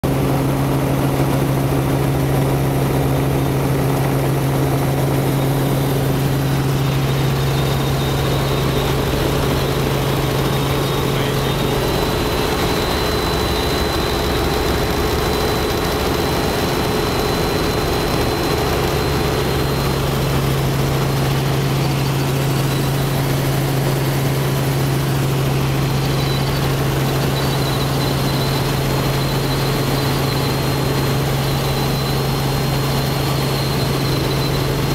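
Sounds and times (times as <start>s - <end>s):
helicopter rotor and engine drone: 0.0s - 34.9s.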